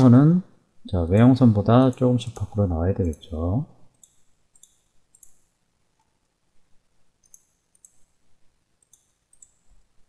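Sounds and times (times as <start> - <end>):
computer mouse clicks: 3.9 - 6.2, 7.2 - 8.1, 8.8 - 9.8.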